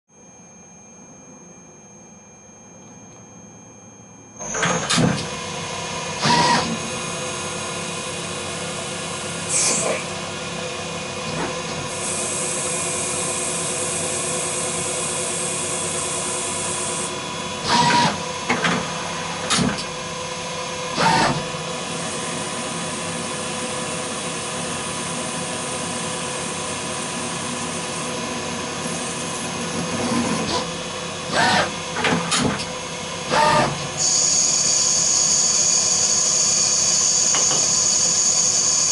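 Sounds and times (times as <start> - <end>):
lathe machine hum: 11.8 - 31.9.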